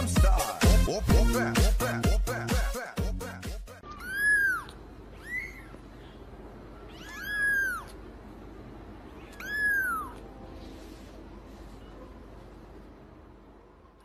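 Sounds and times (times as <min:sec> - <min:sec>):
kitten meowing: 0:03.9 - 0:05.8, 0:06.8 - 0:08.0, 0:09.2 - 0:10.3.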